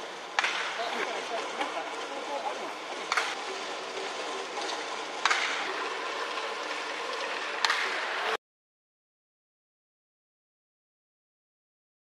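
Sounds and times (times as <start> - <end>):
ballpark crowd noise: 0.0 - 8.4
sharp cracks: 0.3 - 0.8, 5.2 - 5.7.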